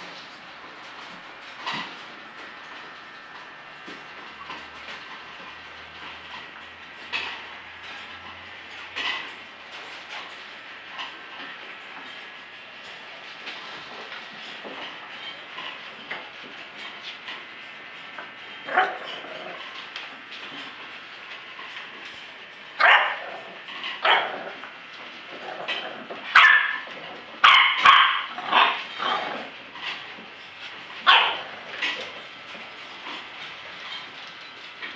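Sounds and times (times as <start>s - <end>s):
puppies barking and yipping: 22.8s - 23.2s, 25.6s - 29.5s, 31.0s - 32.1s.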